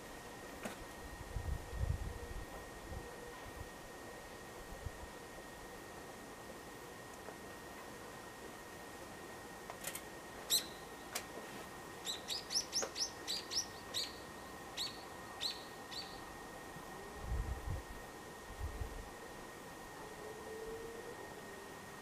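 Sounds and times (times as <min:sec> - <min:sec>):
small bird chirping: 0:10.5 - 0:10.9, 0:12.0 - 0:14.2, 0:14.8 - 0:16.2.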